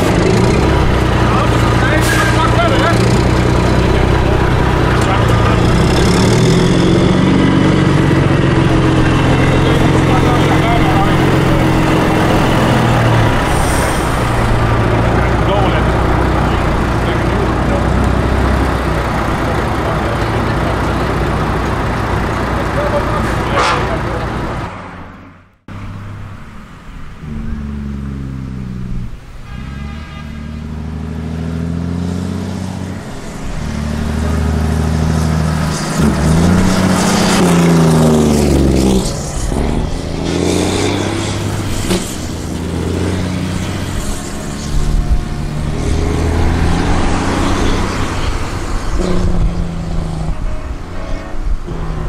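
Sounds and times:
diesel truck accelerating past: 0:00.0 - 0:52.0.

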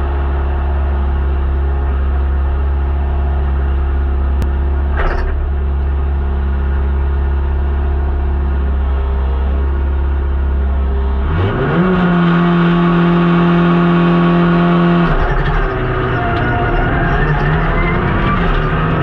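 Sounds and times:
car engine idling: 0:00.0 - 0:11.4.

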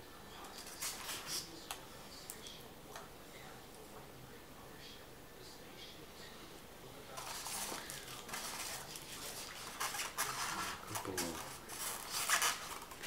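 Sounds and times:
plastic packaging rustling: 0:07.2 - 0:13.0.

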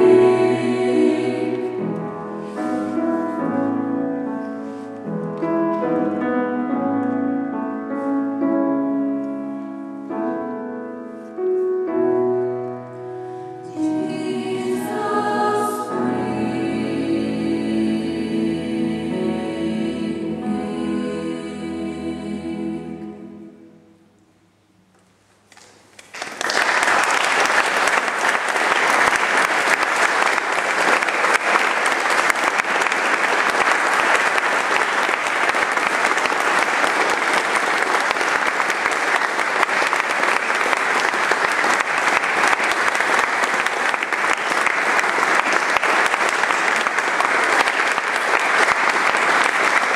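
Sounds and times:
choir with piano: 0:00.0 - 0:24.0
audience applause: 0:25.6 - 0:49.9.

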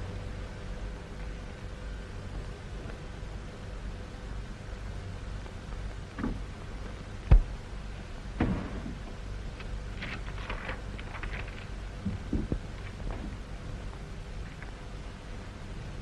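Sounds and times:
film soundtrack hiss: 0:00.0 - 0:16.0
sharp thump: 0:07.3 - 0:07.5, 0:08.4 - 0:09.0
paper rustling and crinkling: 0:09.6 - 0:11.8.

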